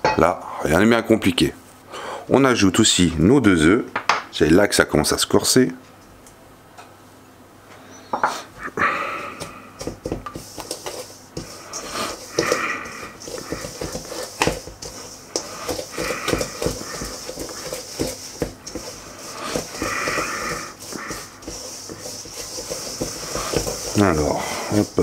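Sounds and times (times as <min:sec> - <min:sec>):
wooden spoon scraping metal bowl: 0:09.3 - 0:25.0.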